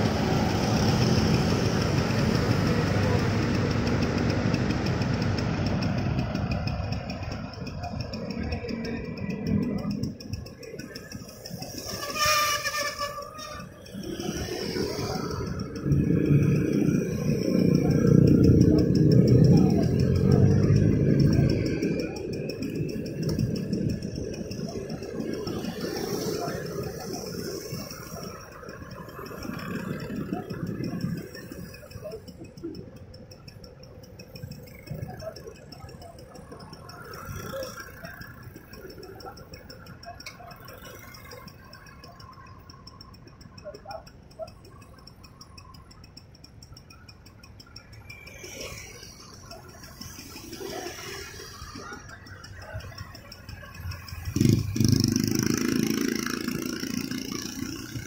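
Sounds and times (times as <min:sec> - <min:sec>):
fast even ticking: 0:00.0 - 0:58.0
scooters and car driving past: 0:00.0 - 0:58.0
traffic engine rumble: 0:00.0 - 0:58.0
vehicle passing: 0:13.3 - 0:32.3.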